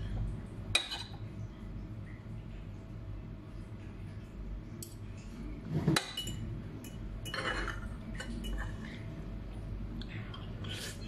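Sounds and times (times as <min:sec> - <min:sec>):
cutlery clinking on ceramic bowl: 0:05.8 - 0:08.8.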